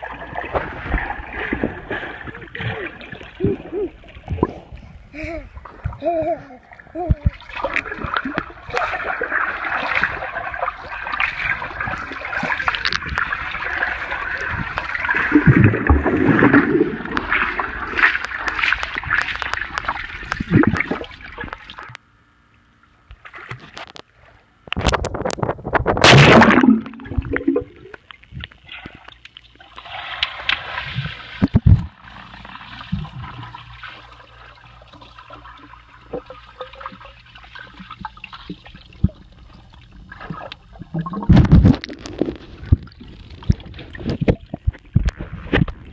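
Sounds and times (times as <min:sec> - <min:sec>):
muffled underwater sound: 0:00.0 - 0:21.9
pool water splashing: 0:00.0 - 0:21.9, 0:26.0 - 0:28.0, 0:28.9 - 0:44.6.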